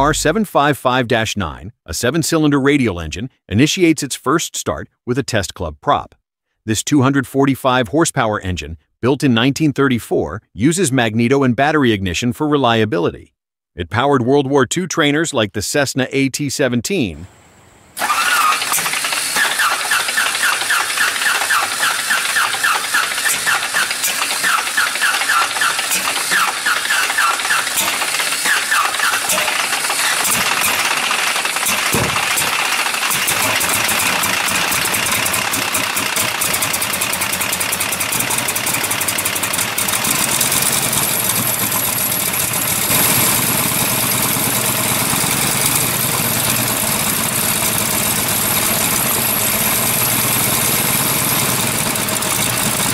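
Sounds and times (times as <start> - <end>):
radial aircraft engine running: 18.0 - 52.9.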